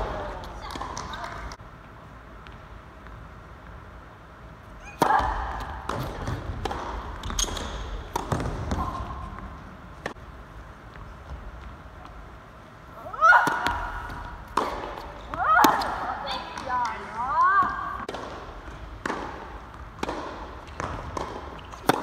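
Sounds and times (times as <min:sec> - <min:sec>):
tennis ball bounces: 0:04.9 - 0:10.2, 0:13.4 - 0:22.0
tennis racket strikes: 0:13.4 - 0:16.0, 0:18.0 - 0:22.0.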